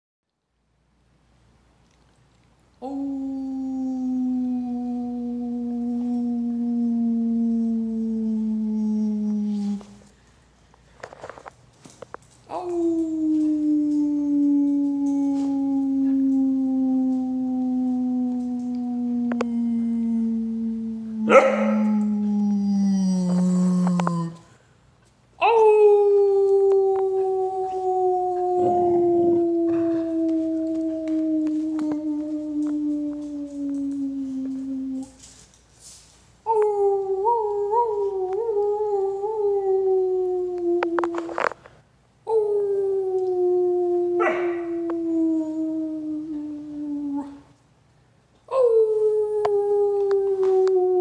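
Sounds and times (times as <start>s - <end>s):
man howling: 2.8s - 10.1s, 12.5s - 24.4s, 25.4s - 35.3s, 36.5s - 41.5s, 42.3s - 47.4s
puppy barking: 21.3s - 21.9s, 44.2s - 44.6s.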